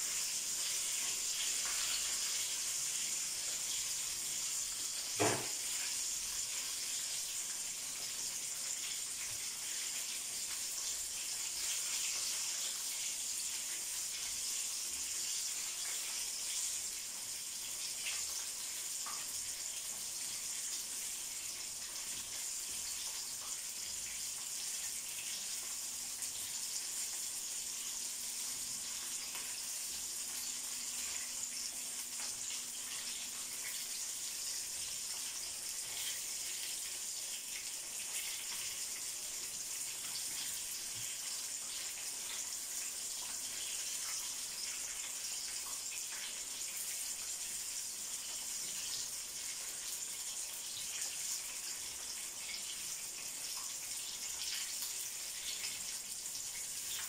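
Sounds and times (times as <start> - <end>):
food deep-frying in oil: 0.0 - 57.0.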